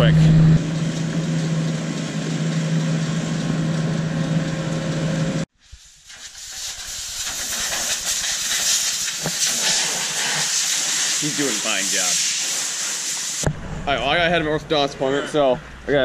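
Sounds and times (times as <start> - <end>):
engine humming: 0.0 - 5.5
pressure washer spray hiss: 5.6 - 13.4.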